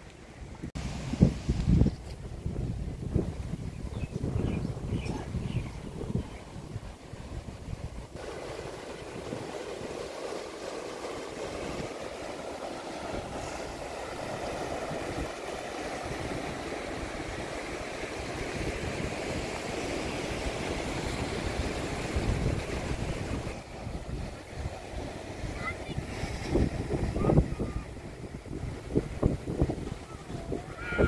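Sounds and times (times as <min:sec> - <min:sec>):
wind rumbling on microphone: 0:00.0 - 0:10.3, 0:13.0 - 0:31.0
surf breaking on rocks: 0:08.1 - 0:31.0.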